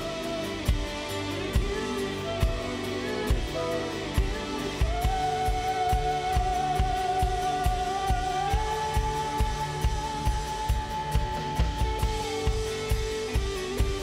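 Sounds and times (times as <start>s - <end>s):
drum kit beat: 0.0s - 14.0s
live band playing: 0.0s - 14.0s.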